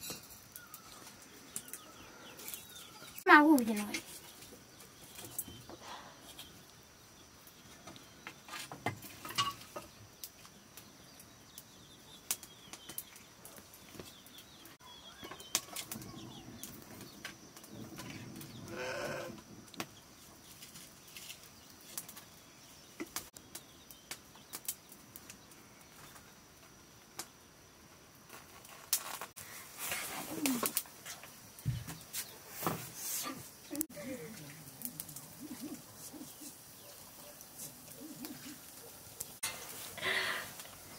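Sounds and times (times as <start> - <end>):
wood fire crackling: 0.0 - 40.9
animal calls: 18.6 - 19.4, 33.2 - 39.4.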